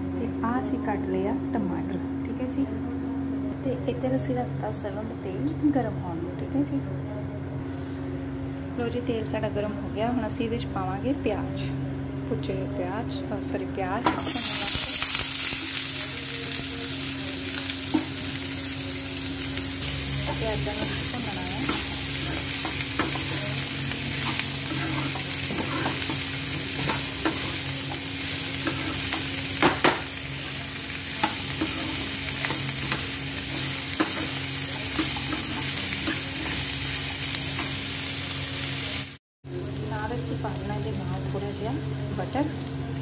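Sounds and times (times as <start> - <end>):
onions sizzling in oil: 14.2 - 43.0
steel spoon scraping and knocking pan: 24.1 - 28.0, 31.2 - 36.6.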